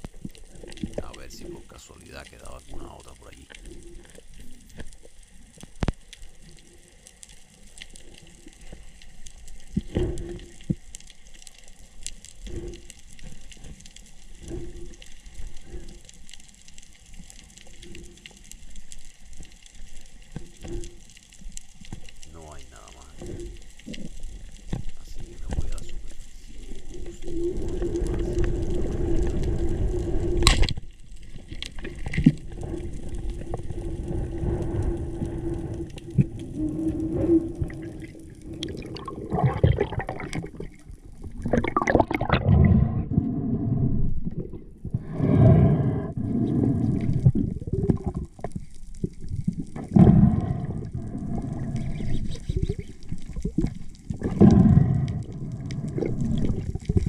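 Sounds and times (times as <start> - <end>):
underwater water rushing and sloshing: 0.0 - 57.0
steady hum: 1.0 - 3.7.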